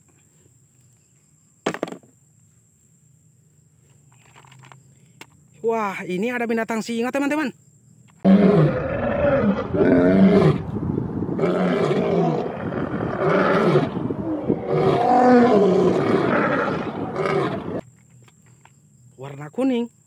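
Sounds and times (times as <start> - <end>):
lions roaring: 8.2 - 17.8.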